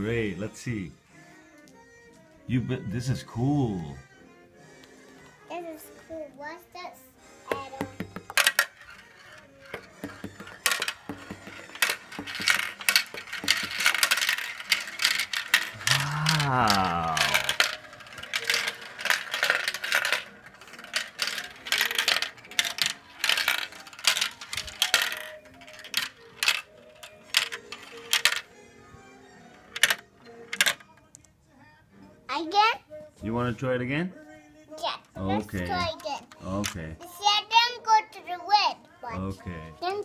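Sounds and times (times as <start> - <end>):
marbles clicking down plastic run: 7.6 - 28.5, 29.6 - 30.8.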